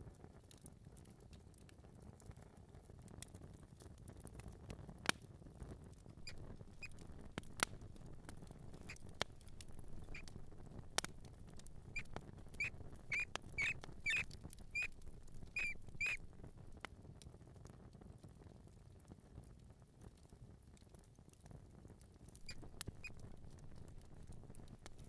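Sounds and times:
mouse squeaking: 0:06.2 - 0:16.3, 0:22.4 - 0:25.0
sharp clicks: 0:06.3 - 0:16.5.

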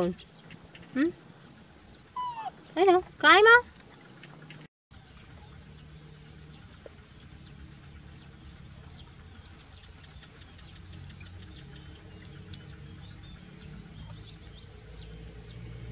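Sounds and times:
small birds chirping: 0:00.0 - 0:15.9
steady low rumble: 0:05.0 - 0:15.9.

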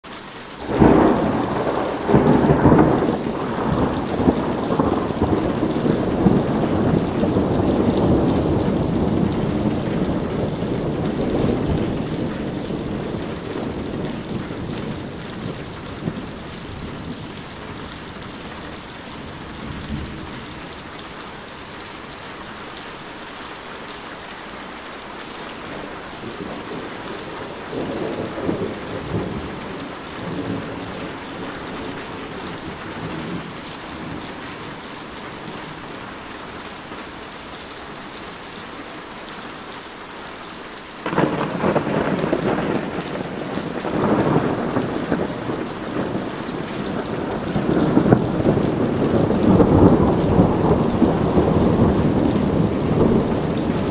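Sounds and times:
heavy rain falling: 0:00.0 - 0:53.9
loud thunderclap: 0:00.6 - 0:17.2, 0:26.3 - 0:34.2, 0:41.0 - 0:53.9
thunder rumbling: 0:00.6 - 0:20.8, 0:25.8 - 0:36.0, 0:41.0 - 0:53.9.

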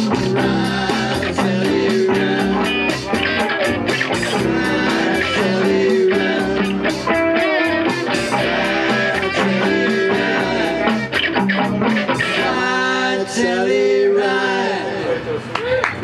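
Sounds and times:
steady drum beat: 0:00.0 - 0:12.4
electric guitars through amplifiers: 0:00.0 - 0:13.0.

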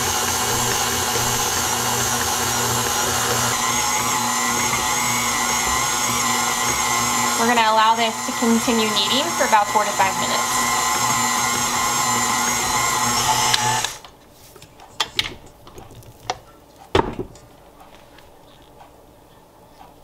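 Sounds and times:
stand mixer kneading dough: 0:00.0 - 0:14.0.

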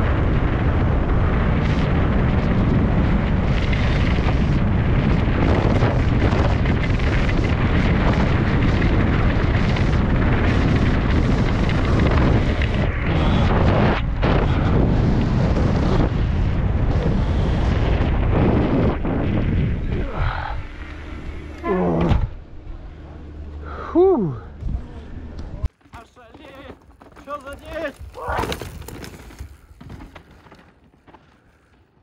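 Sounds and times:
wind buffeting microphone: 0:00.0 - 0:21.4.

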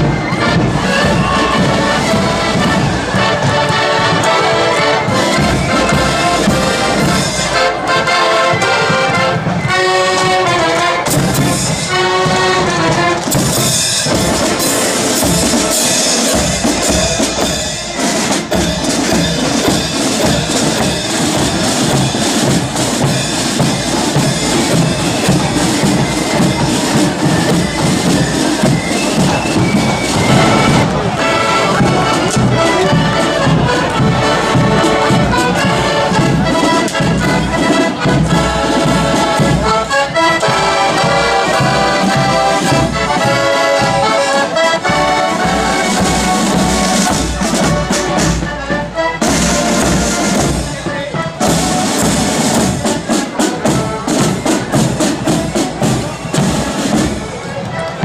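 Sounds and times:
accordion band playing a tune: 0:00.0 - 0:58.0
side drums: 0:00.0 - 0:58.0.

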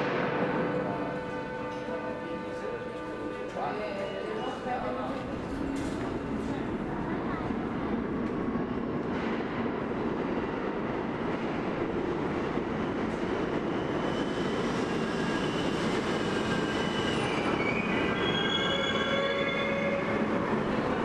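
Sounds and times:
subway train rumbling: 0:00.0 - 0:21.0
metallic wheel squeals: 0:14.0 - 0:20.1.

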